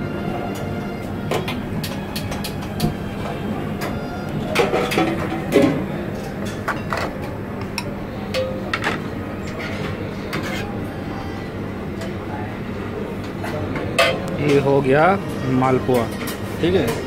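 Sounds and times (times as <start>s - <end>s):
steady background hum: 0.0s - 17.0s
metal utensils clinking on trays: 4.5s - 10.7s.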